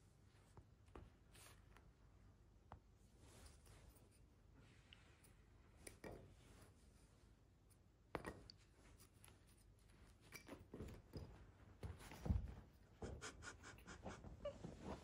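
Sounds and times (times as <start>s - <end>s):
cat paws scratching on rug: 0.3s - 2.0s, 8.7s - 15.0s
cat body thumping floor: 11.8s - 13.2s.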